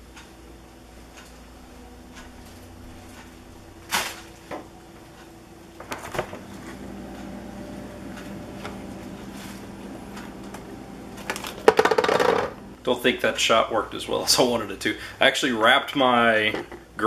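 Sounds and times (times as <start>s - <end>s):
freezer humming: 0.0s - 17.0s
freezer door clunks: 5.8s - 6.5s.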